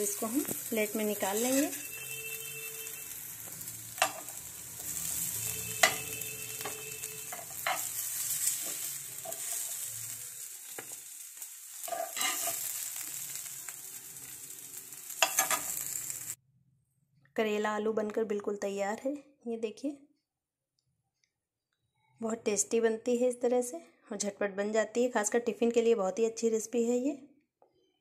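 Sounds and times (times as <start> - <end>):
food sizzling in a pan: 0.0 - 16.4
spoon scraping a pan: 0.2 - 13.0, 15.0 - 16.2.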